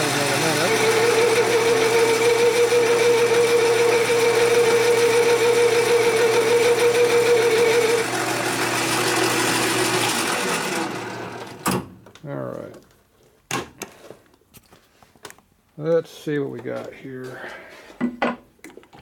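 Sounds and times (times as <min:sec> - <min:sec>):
lathe cutting tool ringing: 0:00.0 - 0:11.5
lathe motor hum: 0:00.0 - 0:11.6.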